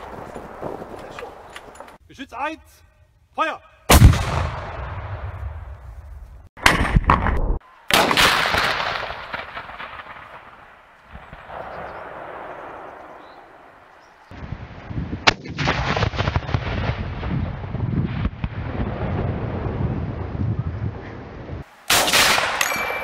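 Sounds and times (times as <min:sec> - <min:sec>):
cannon bangs with echo: 0:03.9 - 0:05.8.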